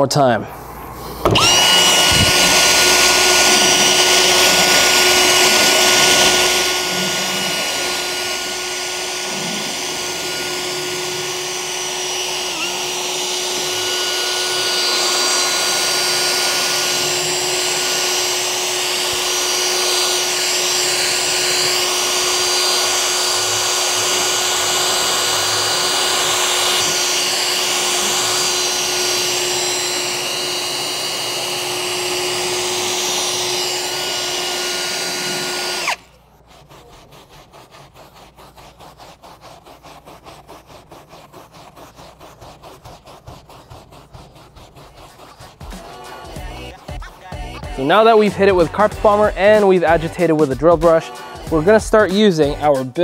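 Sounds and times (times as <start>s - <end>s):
drill motor whine: 1.0s - 36.1s
bristles scrubbing carpet: 1.0s - 53.0s.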